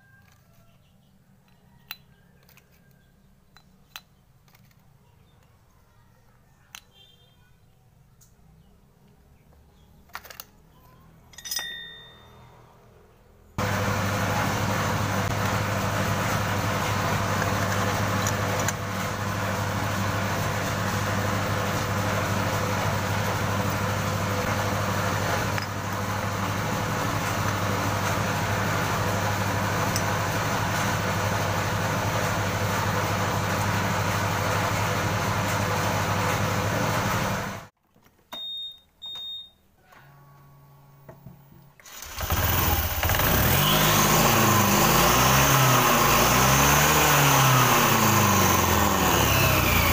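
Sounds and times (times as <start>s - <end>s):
scooter engine running: 13.6s - 37.7s, 41.8s - 49.9s.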